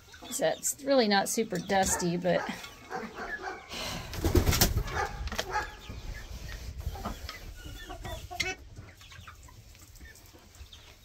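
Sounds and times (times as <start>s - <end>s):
hens clucking: 0.0s - 11.0s.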